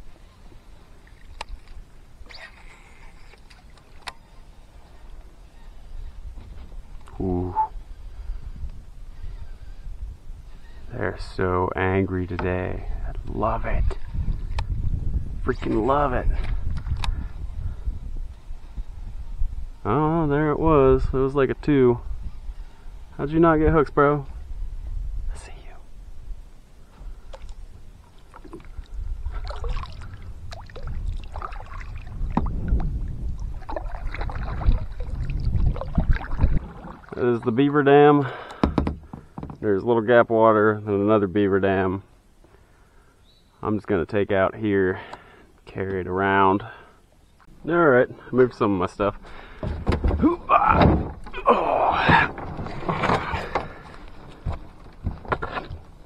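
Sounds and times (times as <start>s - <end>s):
kayak hull scraping and squeaking: 0.0s - 8.0s, 38.6s - 39.8s, 49.2s - 56.0s
paddle strokes splashing water: 27.3s - 37.2s.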